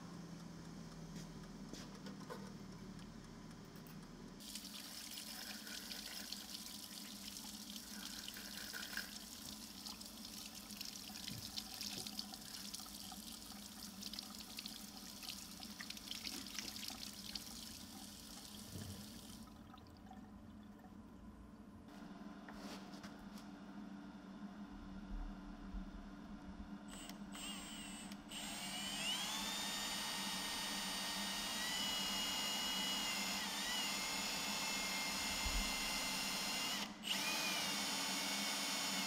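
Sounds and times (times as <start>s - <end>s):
tap water running into sink: 4.4s - 19.6s.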